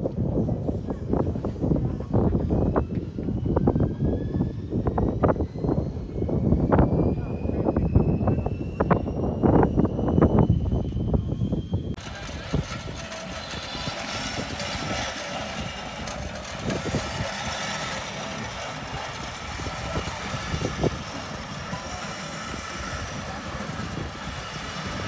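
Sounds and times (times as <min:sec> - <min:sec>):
steam roller running: 0:12.0 - 0:25.0.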